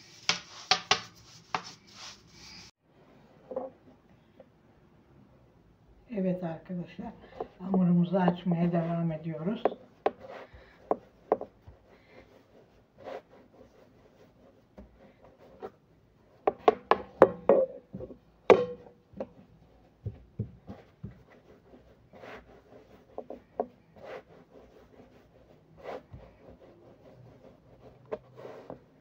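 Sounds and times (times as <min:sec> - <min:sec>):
rolling pin knocking and rubbing: 0:00.1 - 0:02.1, 0:07.3 - 0:11.8, 0:16.4 - 0:25.2.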